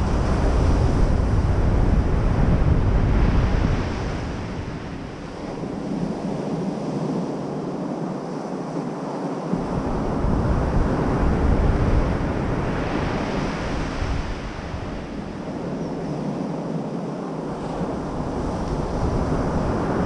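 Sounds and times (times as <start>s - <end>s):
wind buffeting microphone: 0.0s - 20.0s
surf breaking on beach: 9.5s - 20.0s.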